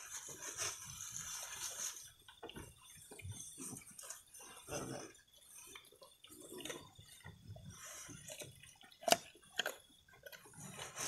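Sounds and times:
leaves rustling: 0.0s - 2.1s
goat chewing leaves: 0.0s - 11.0s.

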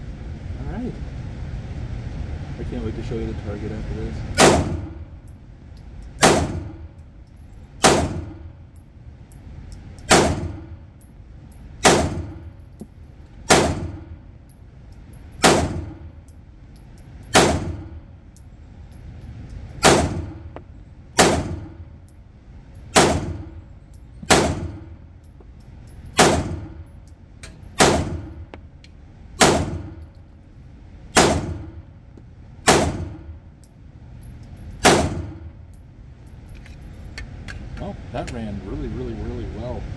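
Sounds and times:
pistol shots echoing indoors: 4.4s - 5.3s, 6.2s - 7.0s, 7.8s - 8.6s, 10.0s - 10.8s, 11.8s - 12.6s, 13.4s - 14.2s, 15.4s - 16.1s, 17.2s - 18.1s, 19.8s - 20.5s, 21.2s - 21.9s, 22.9s - 23.6s, 24.3s - 25.0s, 26.2s - 26.9s, 27.7s - 28.5s, 29.4s - 30.1s, 31.1s - 31.9s, 32.6s - 33.4s, 34.8s - 35.5s.

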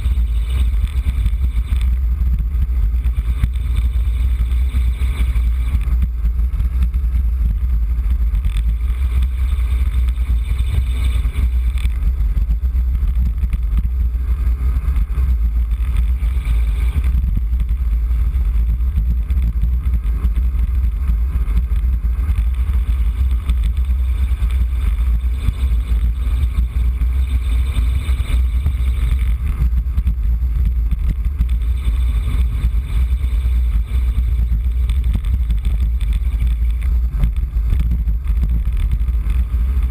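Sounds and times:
wind buffeting microphone: 0.0s - 39.9s.

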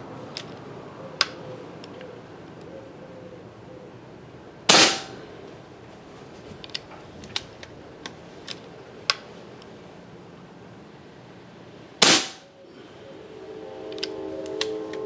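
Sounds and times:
air rifle shot: 4.7s - 5.2s, 12.0s - 12.5s.

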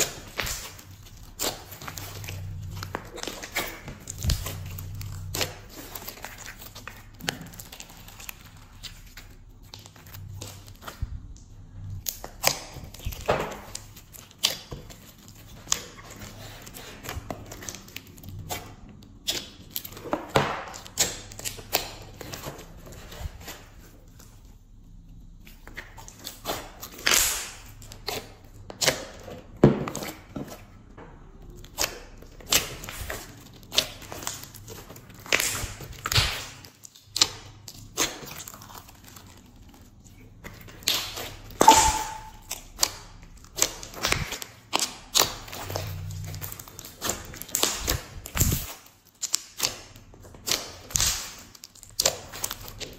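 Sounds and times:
sticky slime pops and crackles: 0.0s - 22.5s, 25.5s - 30.4s, 31.5s - 52.9s
slime snapping: 46.9s - 52.8s.

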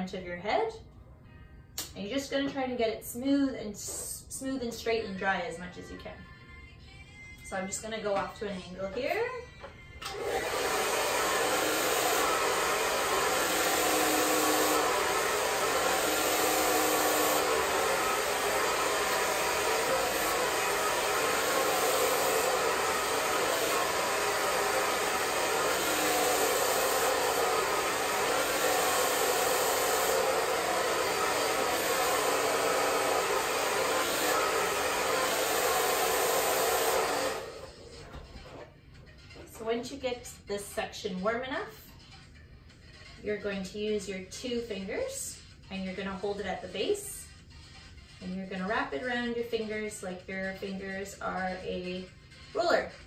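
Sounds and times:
hair dryer blowing: 10.0s - 38.6s.

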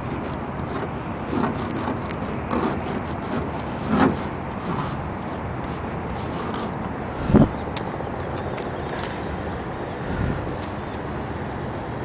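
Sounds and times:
finger scraping frost on glass: 0.0s - 6.8s
rushing background noise: 0.0s - 12.0s.

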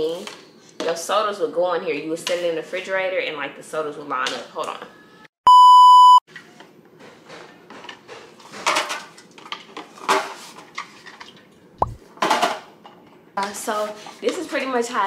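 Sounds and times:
steady test tone beep: 5.5s - 6.2s.

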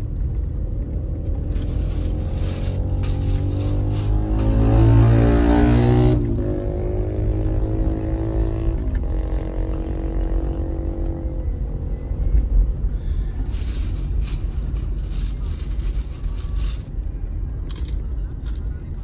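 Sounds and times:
car engine and road rumble: 0.0s - 19.0s
droning pitched hum: 0.0s - 19.0s.

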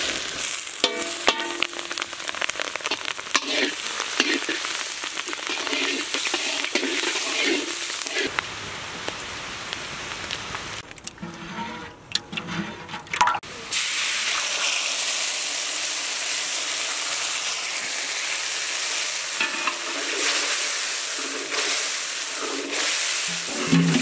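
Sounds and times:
liquid sizzling in hot oil: 0.0s - 11.9s, 12.5s - 24.0s.

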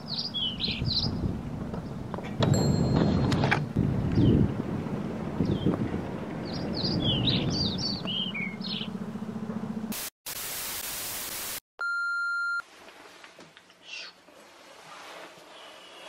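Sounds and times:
wind rumbling on microphone: 0.0s - 9.0s
small birds chirping: 0.1s - 1.2s, 6.4s - 9.0s
static hiss: 9.9s - 11.6s
steady electronic beep: 11.8s - 12.6s.

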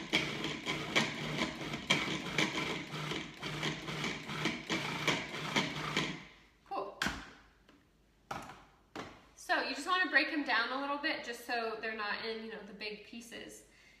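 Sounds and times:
food processor motor humming: 0.0s - 6.2s.

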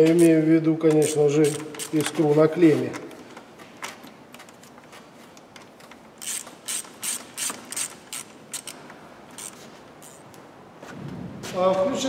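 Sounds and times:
ratchet wrench clicking: 0.9s - 2.2s, 6.2s - 10.3s.

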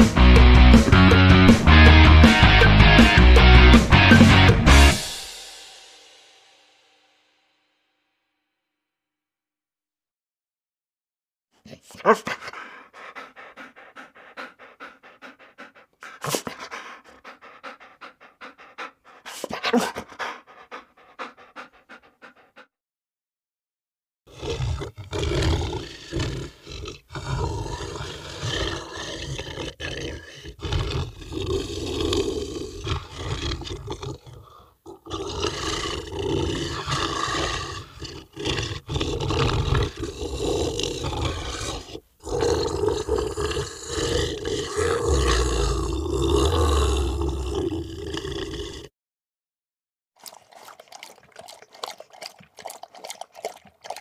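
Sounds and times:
animal growling and roaring: 0.0s - 5.2s, 24.3s - 48.9s.

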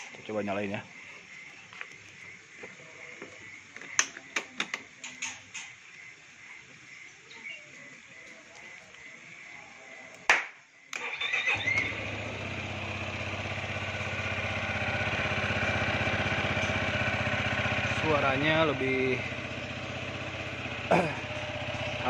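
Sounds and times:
scooter engine starting and idling: 11.0s - 22.0s.

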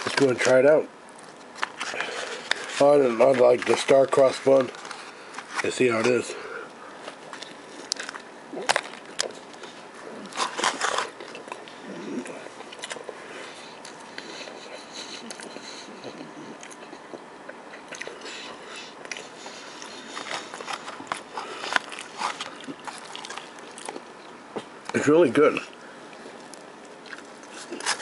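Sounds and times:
person chewing: 6.9s - 24.8s, 25.7s - 28.0s
crunchy bites: 7.0s - 13.2s.

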